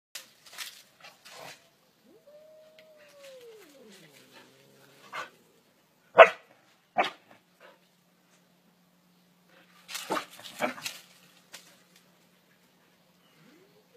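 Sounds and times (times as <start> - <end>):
drawn-out falling cry: 2.0 - 5.8
dog barking: 6.2 - 7.2.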